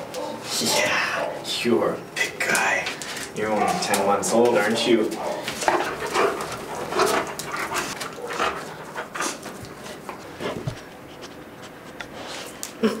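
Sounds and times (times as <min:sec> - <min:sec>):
dogs barking and whining: 0:00.0 - 0:01.6, 0:03.4 - 0:10.2.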